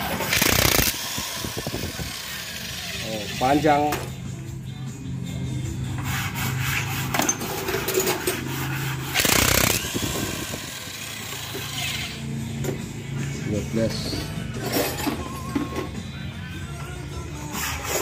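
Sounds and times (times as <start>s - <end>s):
electric impact wrench hammering: 0.0s - 4.1s, 7.1s - 12.8s.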